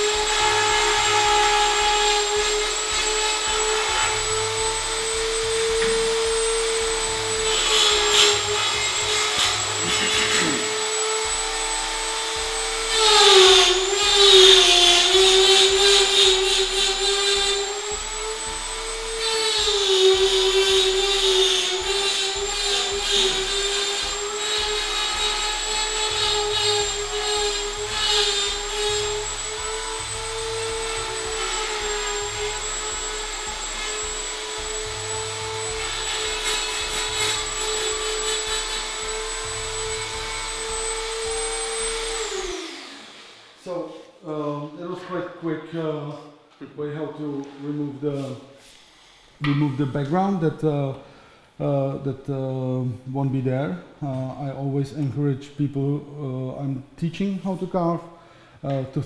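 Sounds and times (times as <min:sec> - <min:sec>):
rotary tool whining: 0:00.0 - 0:43.5.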